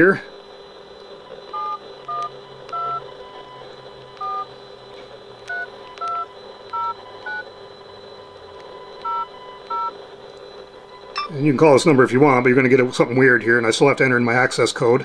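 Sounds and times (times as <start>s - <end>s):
phone keypad dual-tone beeps: 1.5s - 4.5s, 5.5s - 7.5s, 8.2s - 9.9s, 10.9s - 11.4s.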